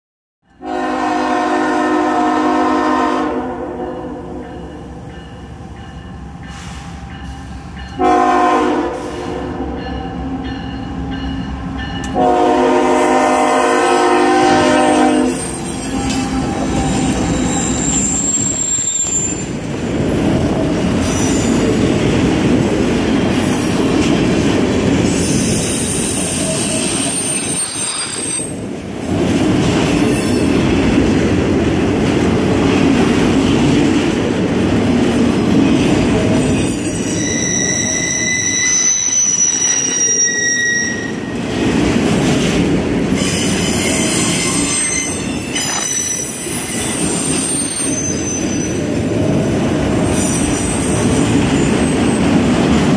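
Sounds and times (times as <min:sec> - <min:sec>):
freight cars rumbling on rail: 0:00.6 - 0:52.9
train wheel squeals: 0:05.1 - 0:08.0, 0:15.3 - 0:19.7, 0:21.0 - 0:21.9, 0:24.6 - 0:28.6, 0:30.0 - 0:30.6, 0:36.4 - 0:41.4, 0:43.2 - 0:49.0, 0:50.0 - 0:52.3.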